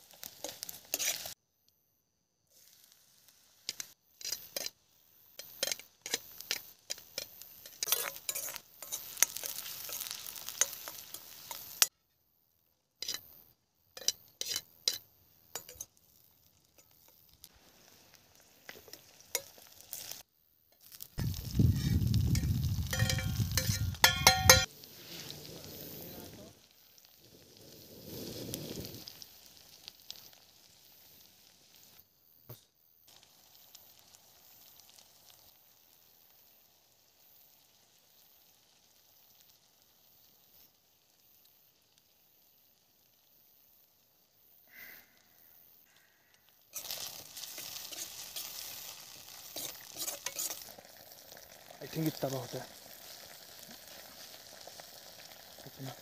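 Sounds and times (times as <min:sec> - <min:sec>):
food sizzling in pan: 0:00.0 - 0:01.4, 0:02.3 - 0:12.0, 0:12.6 - 0:56.0
spoon clinking against pan: 0:22.3 - 0:24.7.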